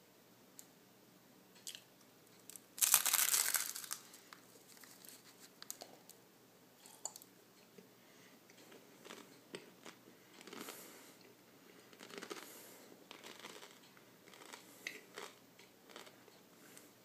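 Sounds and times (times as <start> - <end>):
person chewing crunchy food: 8.6 - 10.9, 11.9 - 16.4.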